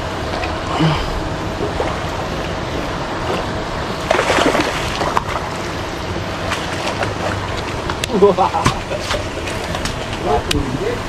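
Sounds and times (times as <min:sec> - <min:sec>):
wind and water noise: 0:00.0 - 0:11.0
fish thrashing and splashing: 0:04.0 - 0:07.9.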